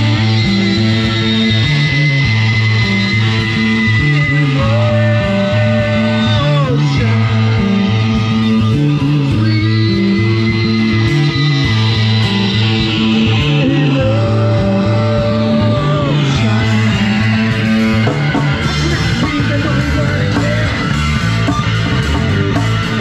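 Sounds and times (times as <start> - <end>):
drums: 0.0 - 23.0
electric guitars: 0.0 - 23.0
person singing into a microphone: 4.0 - 12.1, 12.8 - 21.6.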